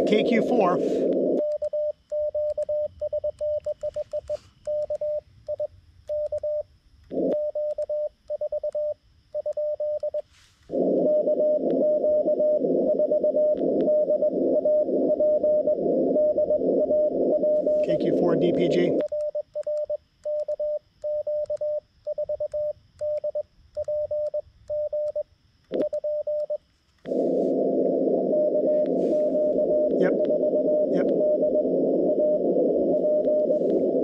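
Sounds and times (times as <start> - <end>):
radio band hiss: 0.0 - 1.4, 17.5 - 19.0, 27.0 - 30.2, 30.8 - 31.2, 32.5 - 34.0
faint morse signal: 0.0 - 34.0
morse code sidetone beeps: 0.0 - 34.0.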